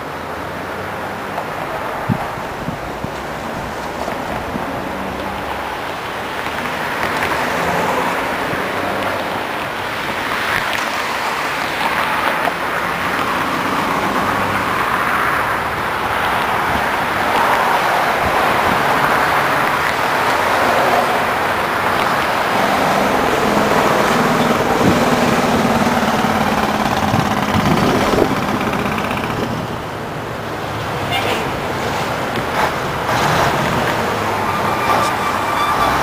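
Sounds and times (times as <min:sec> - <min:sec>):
river water rushing over weir: 0:00.0 - 0:36.0
road traffic passing: 0:00.0 - 0:36.0.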